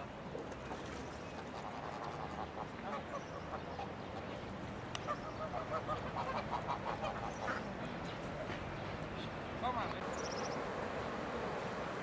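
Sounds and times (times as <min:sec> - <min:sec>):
geese honking: 0:05.1 - 0:07.7.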